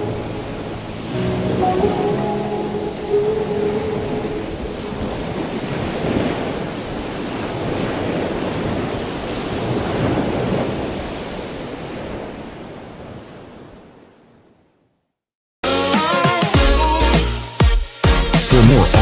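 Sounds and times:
sea waves washing in: 0:00.0 - 0:14.6.

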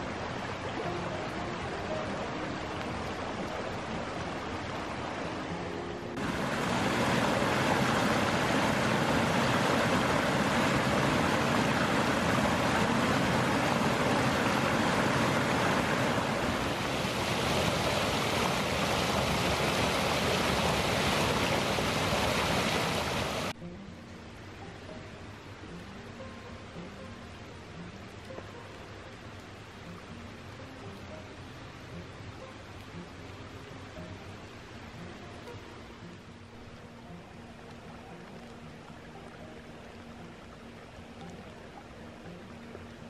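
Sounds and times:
water rushing over rocks: 0:00.0 - 0:23.6
small waterfall pouring: 0:06.1 - 0:23.6.

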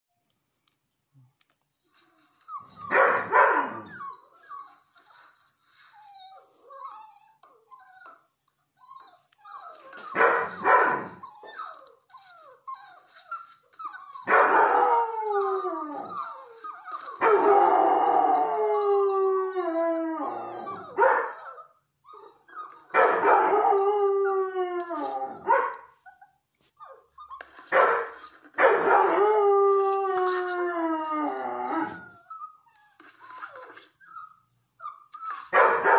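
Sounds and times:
dog whining: 0:01.9 - 0:35.9
dog crying: 0:02.0 - 0:05.2, 0:06.1 - 0:18.4, 0:20.2 - 0:24.4
dog howling: 0:14.2 - 0:21.6, 0:22.2 - 0:25.5, 0:28.8 - 0:32.3.

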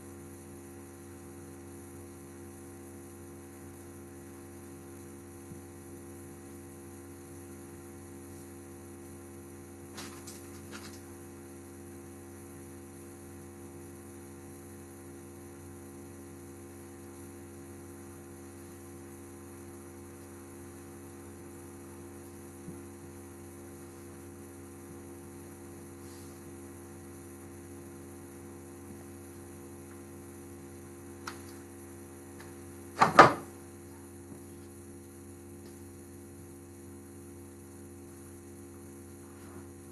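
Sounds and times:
electrical mains hum: 0:00.0 - 0:39.9
loud knock: 0:33.0 - 0:33.5.

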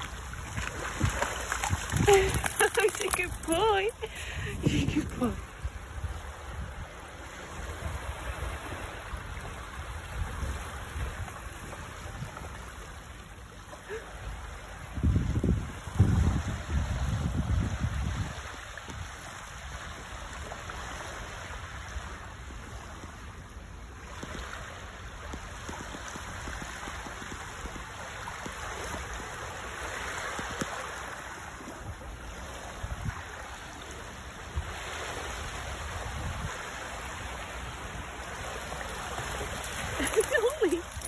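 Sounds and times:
wind rumble on microphone: 0:00.0 - 0:13.1, 0:14.6 - 0:21.1, 0:31.5 - 0:33.8, 0:34.4 - 0:41.0
small waves lapping on shore: 0:00.0 - 0:41.0.

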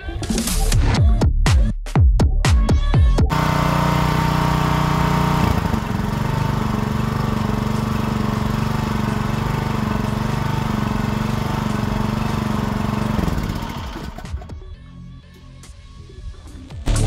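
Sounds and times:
pressure washer engine running: 0:03.3 - 0:14.6.

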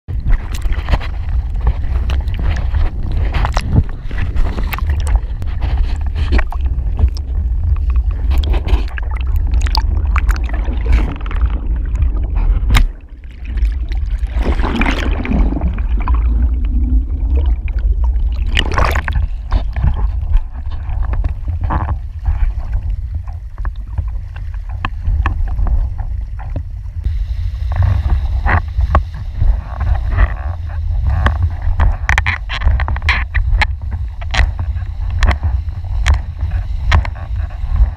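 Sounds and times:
underwater gurgling: 0:00.1 - 0:37.9
wind buffeting microphone: 0:00.1 - 0:37.9
water rushing and splashing: 0:00.2 - 0:37.9.

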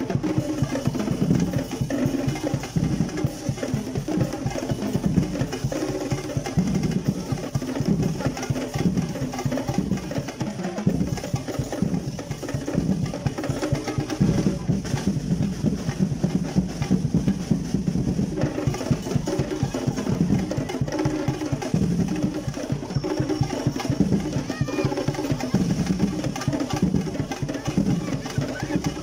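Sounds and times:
fast snare drumming music: 0:00.0 - 0:29.0.

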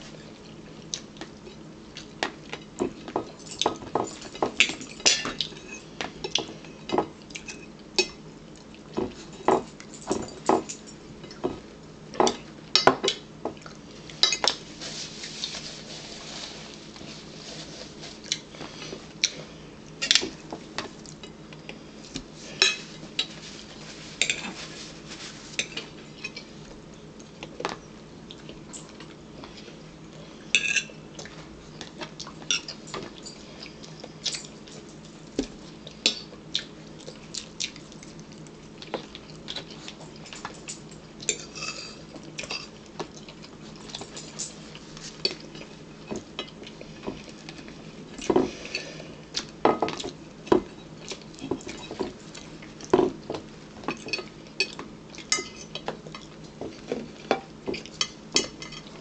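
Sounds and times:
forks clinking on plates: 0:53.9 - 0:55.8.

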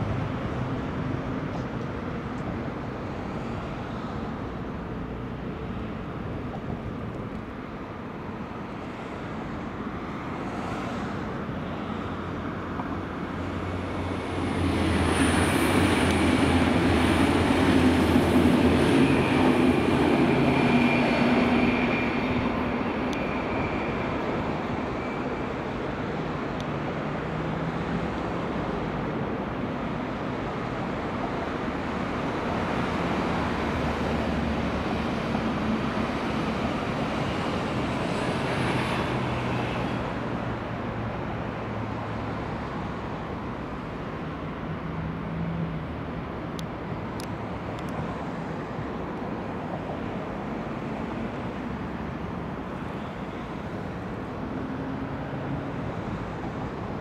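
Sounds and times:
city traffic hum: 0:00.0 - 0:57.0
trains rolling: 0:05.5 - 0:44.7.

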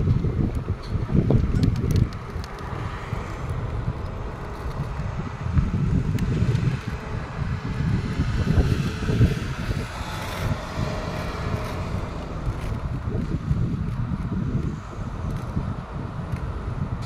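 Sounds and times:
road traffic: 0:00.0 - 0:17.0
wind buffeting the microphone: 0:00.0 - 0:17.0
small truck passing: 0:01.1 - 0:17.0.

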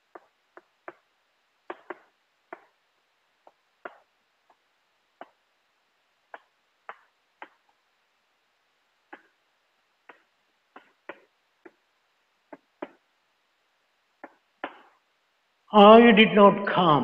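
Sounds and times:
chalk tapping on chalkboard: 0:00.1 - 0:02.8, 0:03.4 - 0:04.6, 0:10.0 - 0:11.9, 0:12.5 - 0:13.1, 0:14.2 - 0:14.9.

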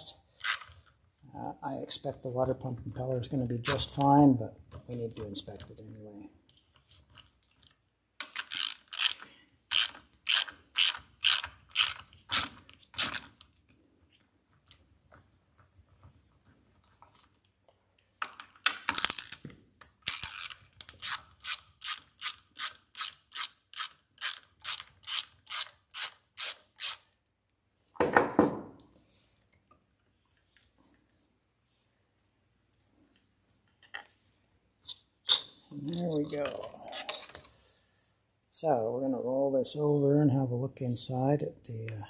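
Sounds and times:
ratchet wrench clicking: 0:08.3 - 0:13.3, 0:20.1 - 0:27.1.

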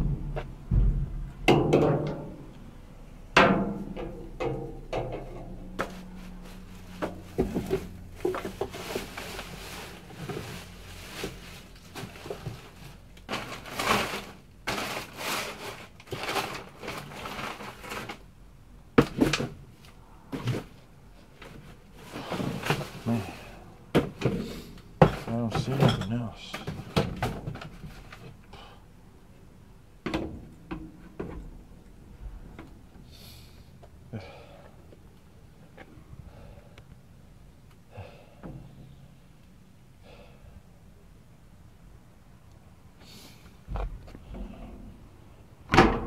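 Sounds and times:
plastic bags rustling: 0:05.8 - 0:18.4
knocks and thumps among cardboard: 0:07.0 - 0:08.8, 0:19.0 - 0:19.6, 0:23.9 - 0:26.0.

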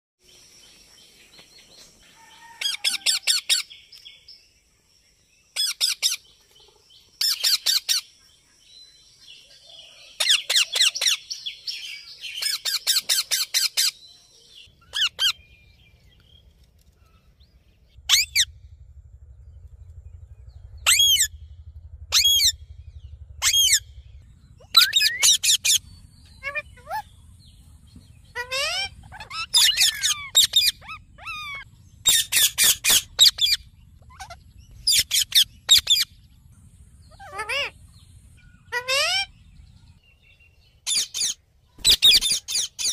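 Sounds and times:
parakeet calling: 0:14.8 - 0:15.5, 0:18.1 - 0:18.5, 0:20.7 - 0:21.4, 0:22.1 - 0:27.6, 0:28.2 - 0:36.2, 0:37.0 - 0:39.7, 0:40.8 - 0:42.9.

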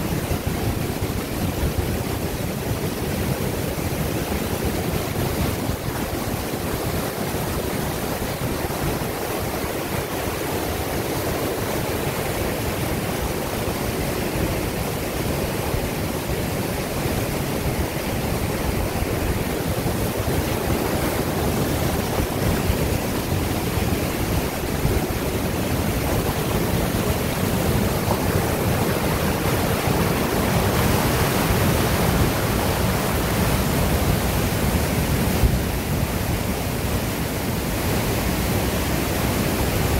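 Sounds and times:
stream rushing through rock chute: 0:00.0 - 0:39.9.

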